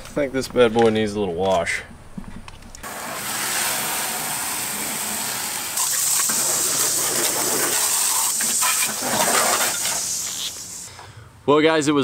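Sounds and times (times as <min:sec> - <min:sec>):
water spraying from hose: 0:02.8 - 0:10.9.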